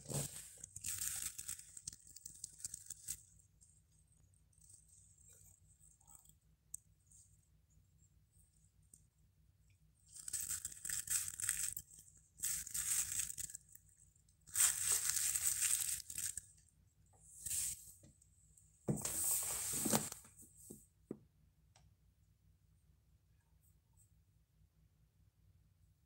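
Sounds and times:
scratchy rustling of handling: 0.0 - 6.0, 10.1 - 13.9, 14.5 - 16.5, 17.3 - 18.0, 18.9 - 20.8.

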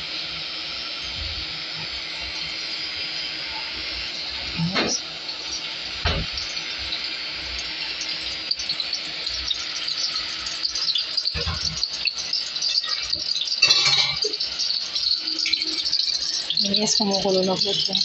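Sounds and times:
oil sizzling in a pot: 0.0 - 18.0.

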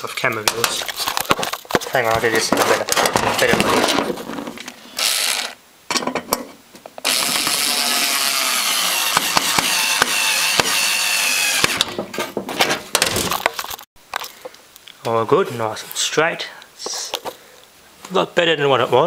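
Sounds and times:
handling clicks and knocks: 0.2 - 4.7
small electric motor whining: 5.0 - 5.6, 7.0 - 11.8.

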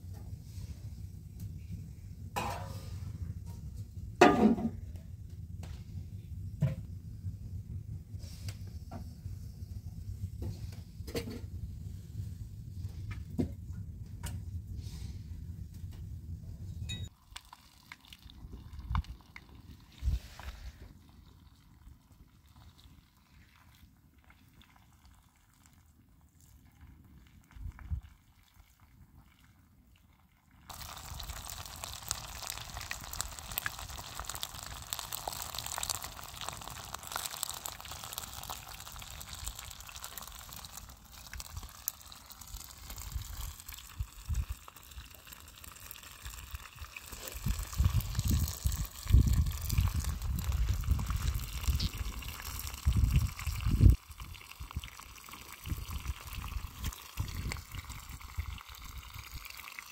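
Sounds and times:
contents hissing and bubbling: 16.8 - 29.8, 30.5 - 59.9
wood fire crackling: 30.6 - 59.9
low rumbling gusts: 47.4 - 54.0.

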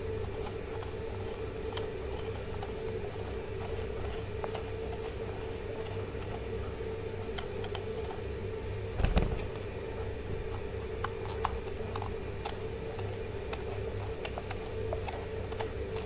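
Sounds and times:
corer scraping zucchini: 0.0 - 8.4, 9.3 - 16.0
steady hum: 0.0 - 16.0
heavy thump: 9.0 - 9.5.

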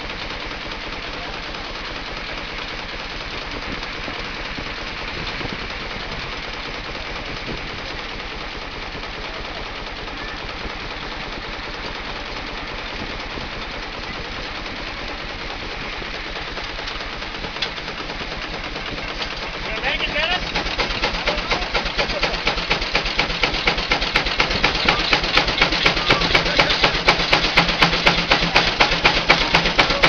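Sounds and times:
fast even exhaust beats: 0.0 - 30.0
steam traction engine running: 0.0 - 30.0.

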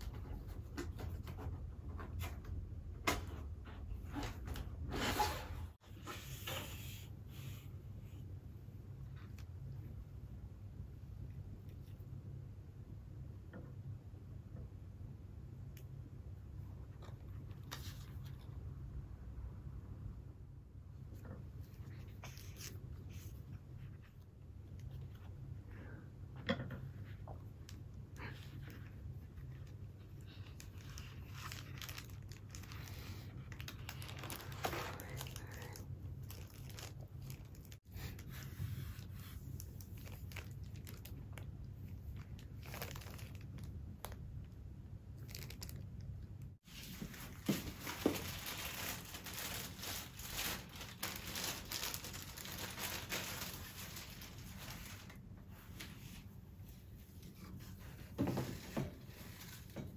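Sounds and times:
plastic wrapping crinkling and tearing: 28.2 - 38.3, 39.0 - 44.2, 45.1 - 55.3.

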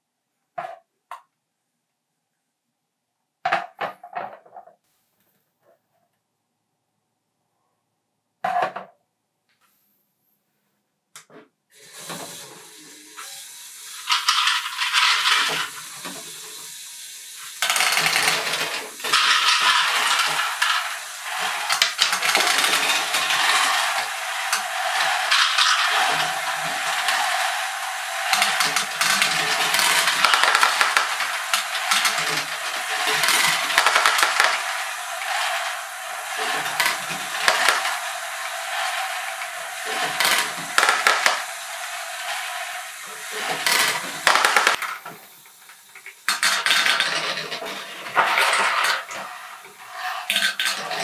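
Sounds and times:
plastic balls rattling in lift: 13.9 - 16.8, 17.4 - 51.0.

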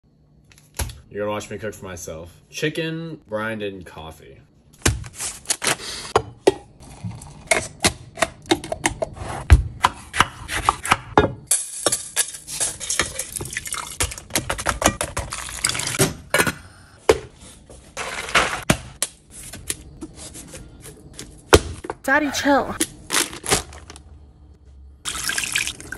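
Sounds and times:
liquid pouring into pot: 13.0 - 14.1, 25.1 - 25.9
liquid pouring into plastic container: 25.1 - 25.9.

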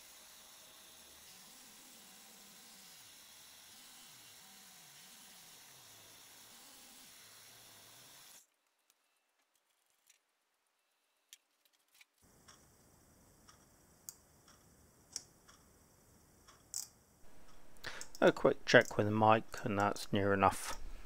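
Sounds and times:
milling machine hissing: 0.0 - 8.4
micrometer ticks: 13.4 - 15.7.

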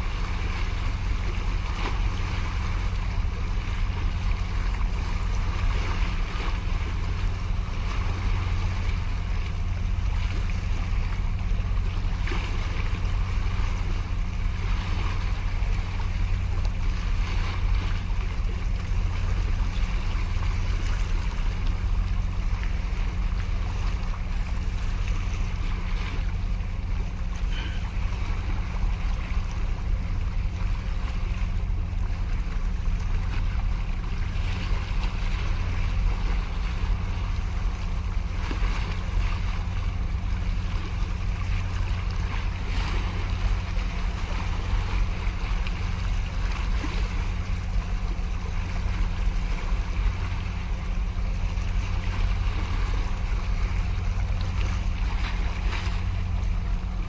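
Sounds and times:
deep rumble: 0.0 - 57.0.

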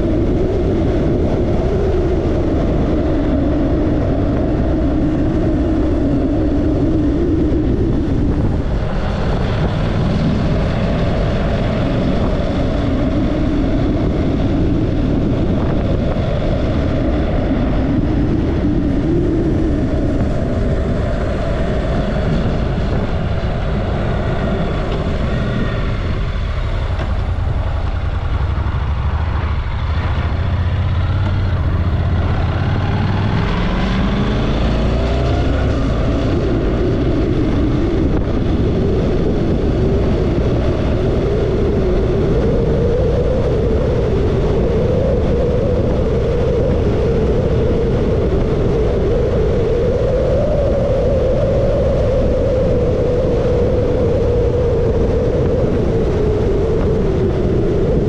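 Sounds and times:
motorcycle engine accelerating: 0.0 - 49.0
wind noise: 0.0 - 58.0.

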